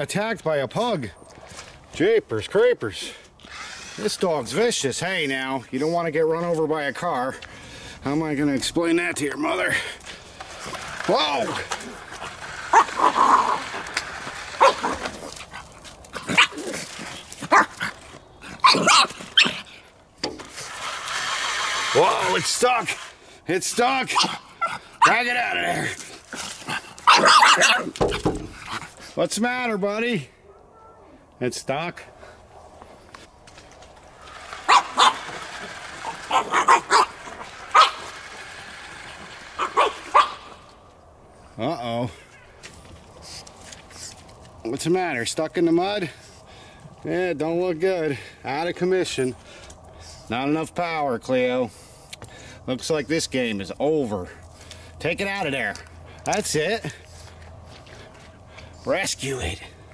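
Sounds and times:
puppy barking: 14.6 - 15.0, 18.6 - 19.6, 27.0 - 27.9, 34.7 - 35.3, 36.3 - 38.1, 39.6 - 40.5.

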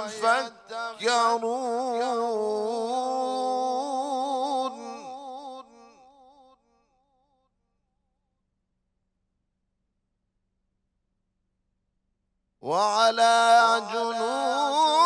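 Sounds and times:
man reciting melodically: 0.0 - 6.1, 12.6 - 15.0.

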